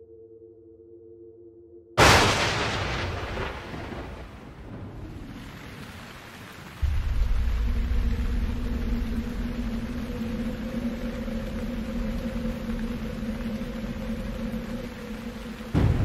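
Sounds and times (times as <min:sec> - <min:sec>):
thunder rumbling: 0:02.0 - 0:16.0
heavy low rumble: 0:06.8 - 0:16.0.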